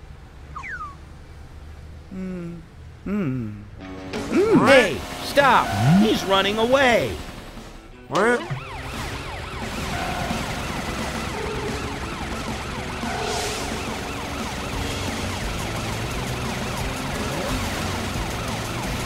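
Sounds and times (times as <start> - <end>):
siren in fast yelp: 8.2 - 19.0.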